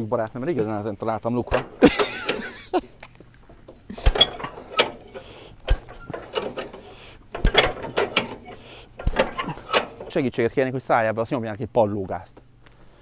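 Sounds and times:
metallic clicks and clunks: 0.5 - 10.4.

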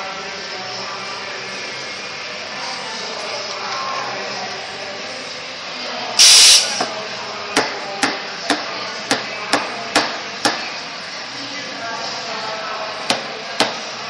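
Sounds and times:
steam wand hissing: 6.2 - 6.9.

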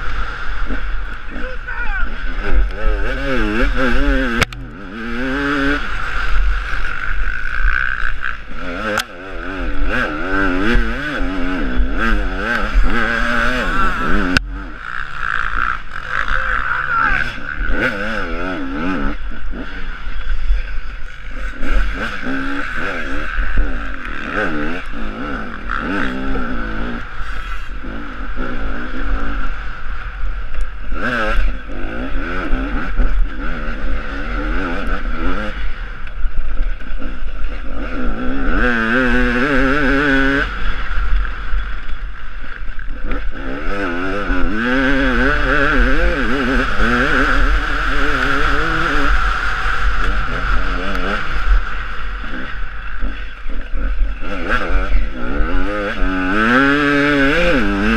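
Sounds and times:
motorcycle engine revving: 0.0 - 57.9
steady low rumble: 2.3 - 7.8, 13.6 - 16.6.

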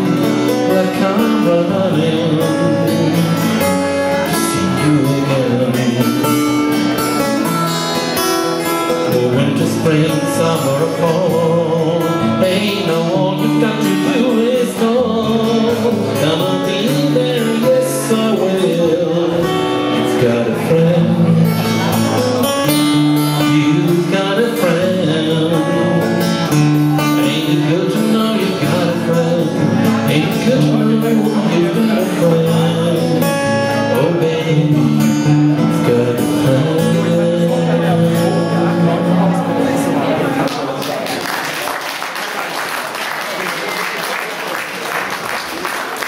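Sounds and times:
man singing: 0.0 - 7.7, 8.6 - 40.4
acoustic guitar: 0.0 - 46.0.

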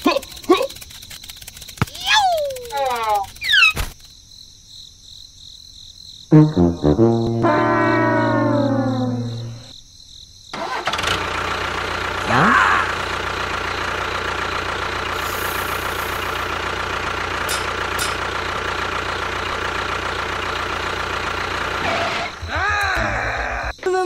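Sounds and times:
pitched sweep: 6.3 - 9.7.

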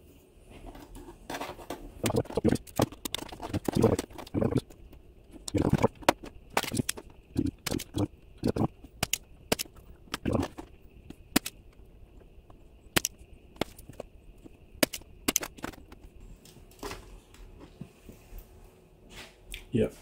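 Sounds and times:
desoldering pump clicks and snaps: 9.0 - 10.2.

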